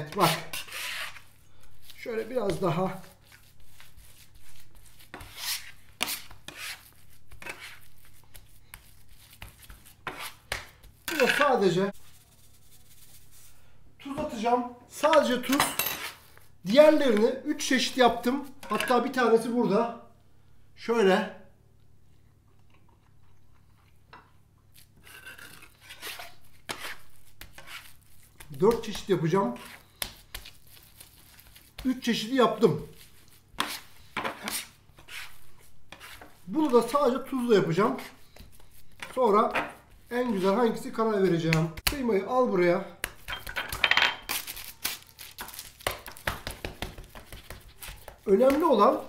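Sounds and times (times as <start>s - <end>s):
meat scraped on wooden board: 0.1s - 11.5s, 24.8s - 31.9s, 32.9s - 40.6s
man chewing food: 22.1s - 25.0s.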